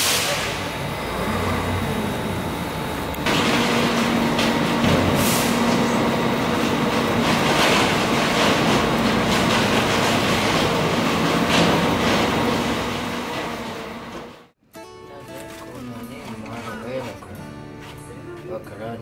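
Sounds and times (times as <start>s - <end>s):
garbage truck engine humming: 0.0s - 14.6s
furniture crunching in compactor: 3.2s - 14.4s.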